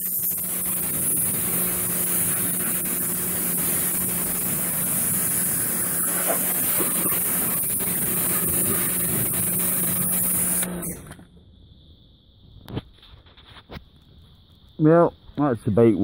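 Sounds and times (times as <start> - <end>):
water jet hissing: 0.0 - 11.1
pressure washer pump hum: 0.0 - 11.2.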